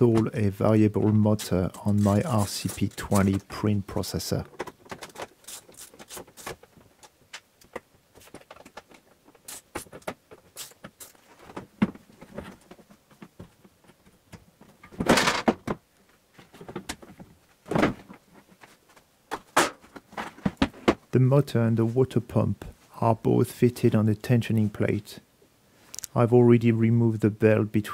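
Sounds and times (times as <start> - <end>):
plastic cover clattering: 4.5 - 5.4.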